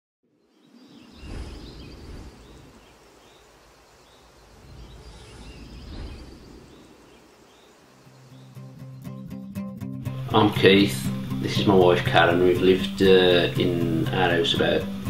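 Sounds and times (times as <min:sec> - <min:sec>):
rumbling whoosh: 0:00.8 - 0:07.8.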